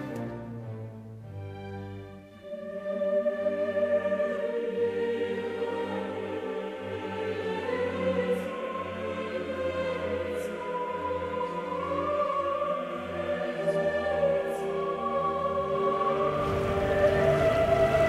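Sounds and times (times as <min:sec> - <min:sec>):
choral operatic singing: 0:00.0 - 0:18.0
low pulsing drone: 0:16.0 - 0:18.0.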